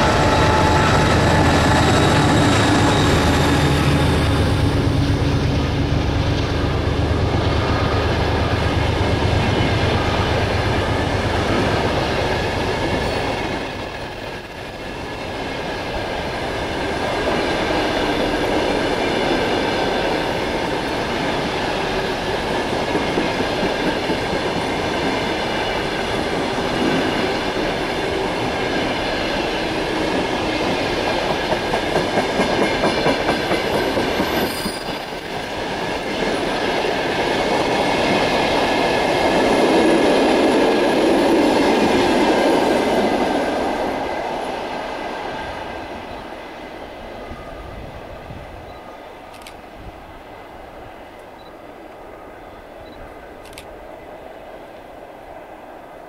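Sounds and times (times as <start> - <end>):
high-pitched ringing: 0.0 - 5.5.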